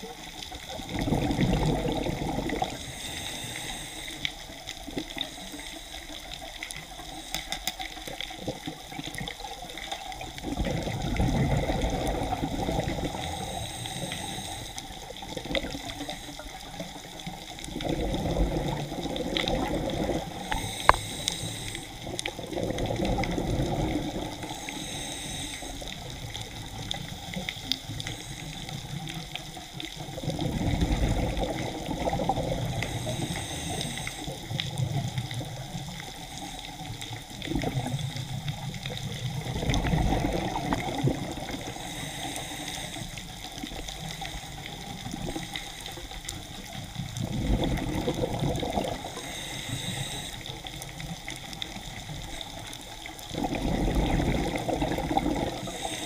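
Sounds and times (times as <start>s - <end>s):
steady underwater hiss: 0.0s - 56.0s
exhaled bubbles rushing: 0.6s - 2.9s, 10.1s - 13.6s, 16.8s - 21.0s, 22.0s - 24.6s, 29.9s - 33.2s, 37.3s - 41.8s, 46.7s - 49.2s, 53.1s - 55.9s
diver breathing through regulator: 0.6s - 8.0s, 11.1s - 17.1s, 17.9s - 29.2s, 30.4s - 34.9s, 39.6s - 46.4s, 47.3s - 50.8s, 51.8s - 56.0s.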